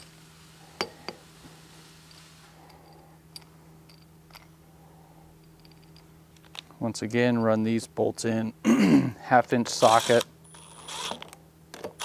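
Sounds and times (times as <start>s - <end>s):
metal clinks and taps: 2.7s - 4.5s, 5.4s - 6.1s.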